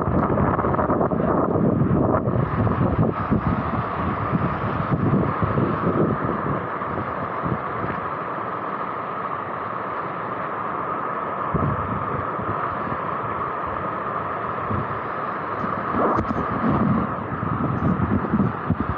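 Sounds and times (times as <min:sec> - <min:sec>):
wind buffeting microphone: 0:00.0 - 0:08.0, 0:11.5 - 0:13.9, 0:14.6 - 0:18.9.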